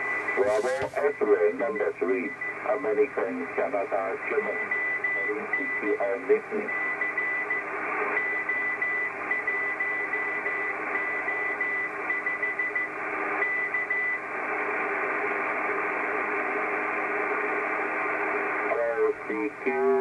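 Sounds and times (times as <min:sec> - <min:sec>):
morse code beeps: 0:00.0 - 0:02.8, 0:04.4 - 0:06.0, 0:06.6 - 0:07.6, 0:08.2 - 0:14.2
radio receiver hiss: 0:00.0 - 0:06.6.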